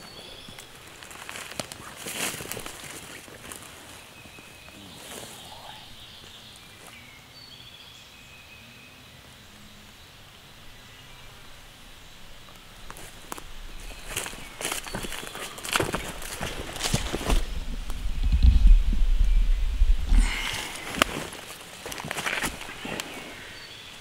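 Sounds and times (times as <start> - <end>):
footsteps through leaf litter: 0.0 - 5.5, 12.9 - 17.6, 20.3 - 23.8
bird calls: 0.0 - 24.0.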